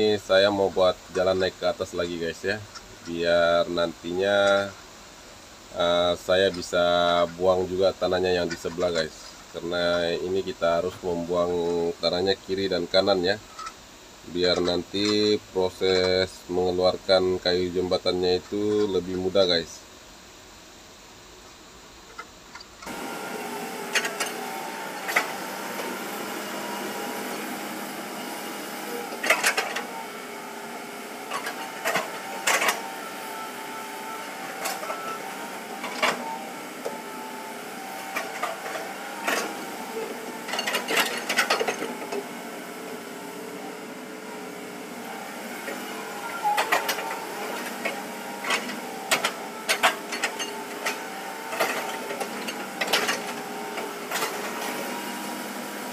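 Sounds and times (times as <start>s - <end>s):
excavator engine and hydraulics humming: 0.0s - 55.9s
clanks of steel tracks and bucket: 7.9s - 9.1s, 22.1s - 42.5s, 44.9s - 55.3s.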